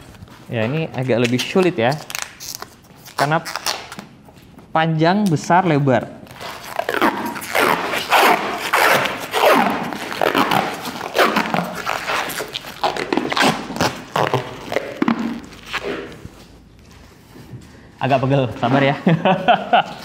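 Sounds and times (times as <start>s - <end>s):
plastic wrap peeling and crinkling: 0.0s - 4.6s, 6.2s - 17.2s.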